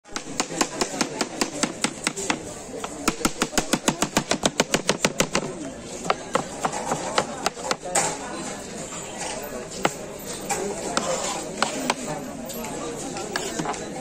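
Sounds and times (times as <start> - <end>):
murmur of voices: 0.0 - 14.0
knife chopping on cutting board: 13.3 - 13.8.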